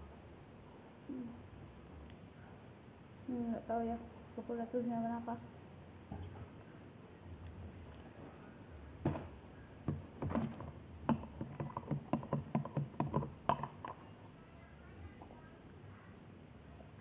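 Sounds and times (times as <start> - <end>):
hands tapping and knocking: 9.0 - 14.0.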